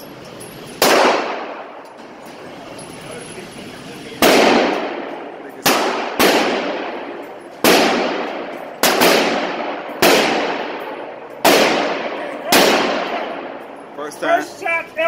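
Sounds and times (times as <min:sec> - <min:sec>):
gunshots echoing indoors: 0:00.7 - 0:02.1, 0:04.2 - 0:13.9.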